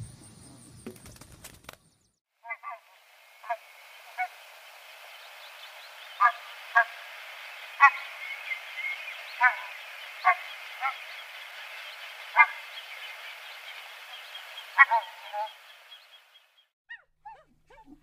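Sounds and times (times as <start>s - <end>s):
geese honking: 2.4s - 16.4s.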